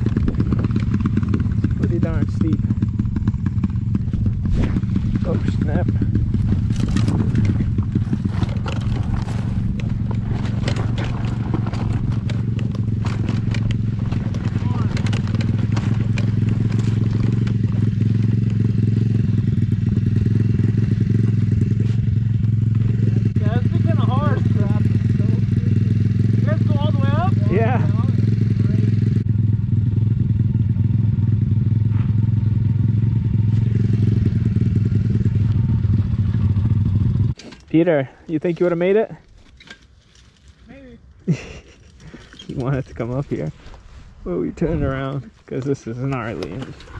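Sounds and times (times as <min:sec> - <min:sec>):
bike clattering over bumps: 0:00.0 - 0:25.2
motorbike engine running: 0:00.0 - 0:37.4.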